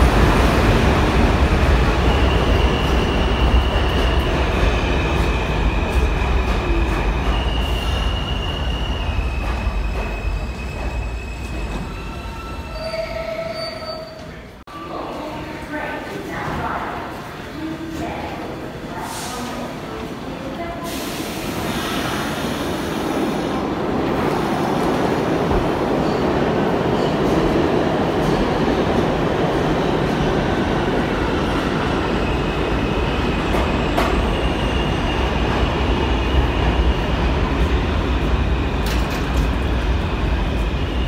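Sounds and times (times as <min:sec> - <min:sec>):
subway train rumbling: 0:00.0 - 0:41.0.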